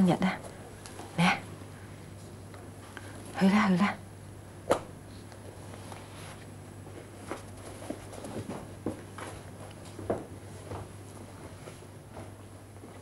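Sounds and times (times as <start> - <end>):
steady low hum: 0.0 - 13.0
soft footsteps: 5.7 - 13.0.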